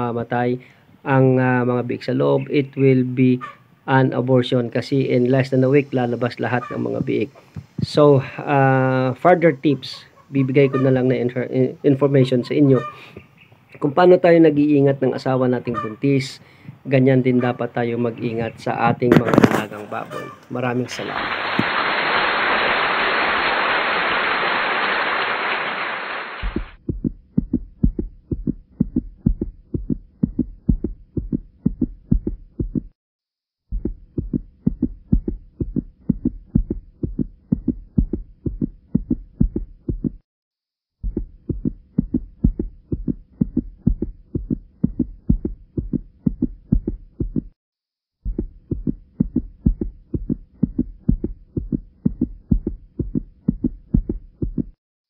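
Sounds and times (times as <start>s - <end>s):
loud hiss: 20.9s - 26.7s
fast heartbeat thumps: 26.4s - 33.0s, 33.7s - 40.2s, 41.0s - 47.6s, 48.2s - 54.8s.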